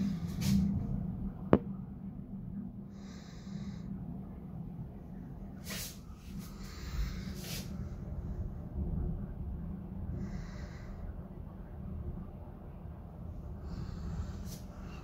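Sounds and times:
rain and wind against window: 4.0 - 15.0.

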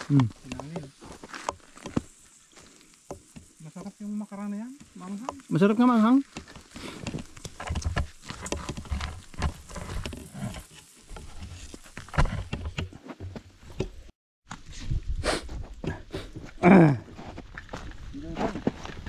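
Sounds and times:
footsteps crunching in snow: 0.0 - 3.7, 17.1 - 19.0.

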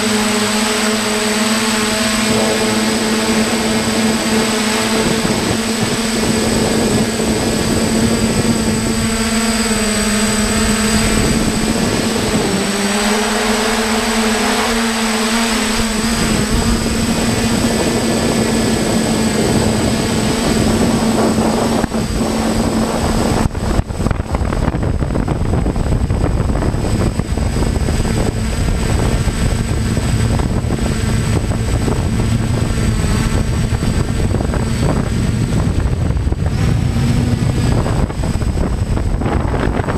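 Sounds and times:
drone motors humming: 0.0 - 39.9
wind buffeting microphone: 0.0 - 39.9.

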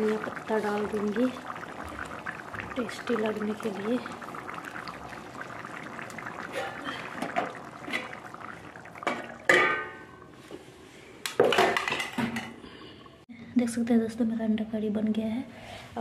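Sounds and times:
curry bubbling and crackling: 0.0 - 13.2
metal plate lid clanging: 9.1 - 10.1.

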